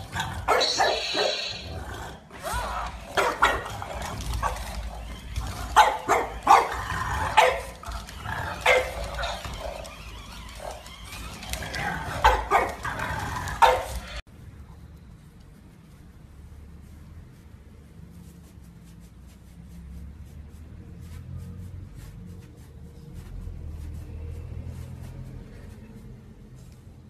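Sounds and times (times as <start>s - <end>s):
dogs barking: 0.0s - 1.8s, 2.4s - 14.2s.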